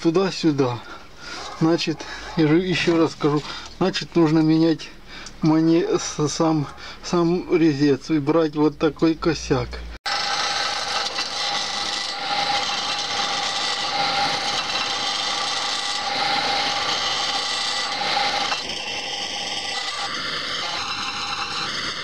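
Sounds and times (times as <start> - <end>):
chisel cutting hiss: 10.1 - 22.0
wood lathe hum: 10.1 - 22.0.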